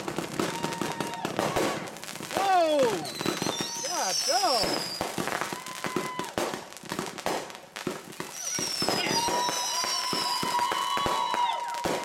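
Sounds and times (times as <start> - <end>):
fireworks bangs and crackles: 0.0 - 12.0
firework whistles: 0.4 - 6.5, 8.1 - 12.0.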